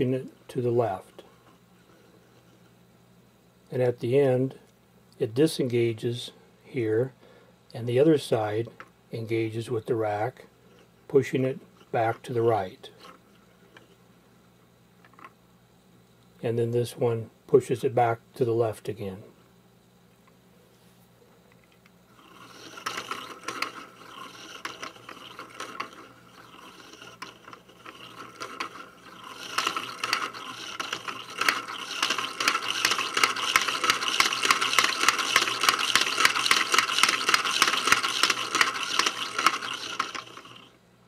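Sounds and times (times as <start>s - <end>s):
plastic gear teeth clicking: 22.2s - 40.7s.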